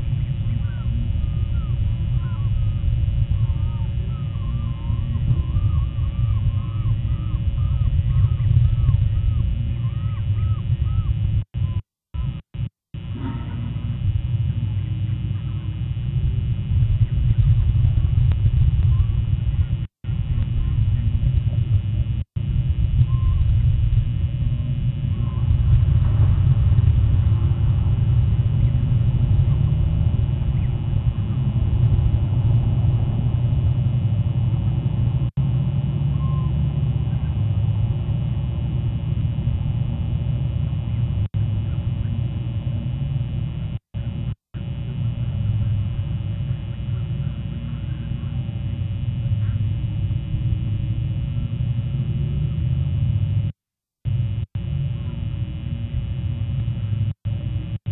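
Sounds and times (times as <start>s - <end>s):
wind buffeting microphone: 0.0s - 11.8s, 16.0s - 42.1s.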